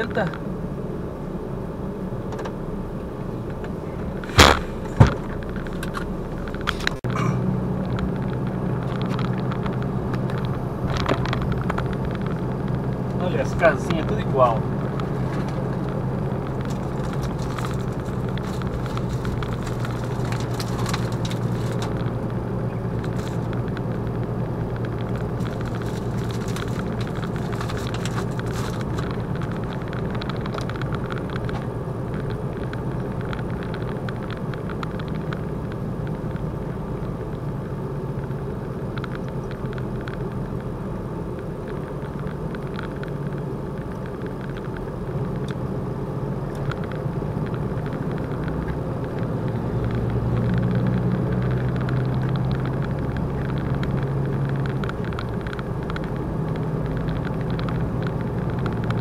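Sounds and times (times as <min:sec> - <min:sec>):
lorry engine drone: 0:00.0 - 0:32.3
road noise: 0:00.0 - 0:59.0
faint clicks and rattles: 0:03.4 - 0:45.8, 0:46.4 - 0:59.0.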